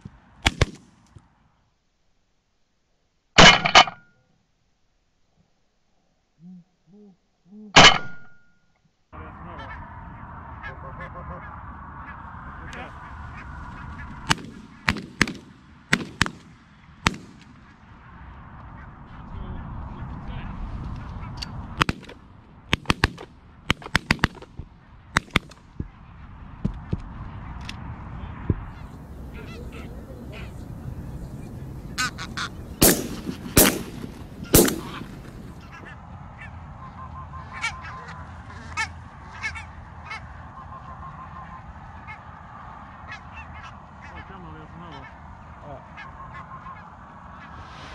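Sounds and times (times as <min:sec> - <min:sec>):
shotgun shots: 0:00.4 - 0:01.0, 0:14.2 - 0:17.8, 0:21.8 - 0:24.6, 0:25.2 - 0:25.6, 0:32.8 - 0:35.6
geese honking: 0:09.2 - 0:14.9, 0:28.7 - 0:47.6.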